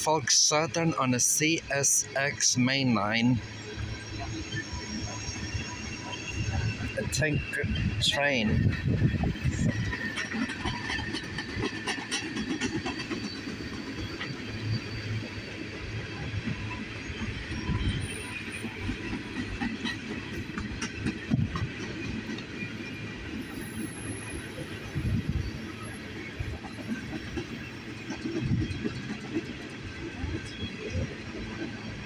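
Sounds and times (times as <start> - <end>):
steel wheels rumbling on rail: 0.0 - 32.0
train wheels clicking: 8.6 - 15.7, 16.3 - 32.0.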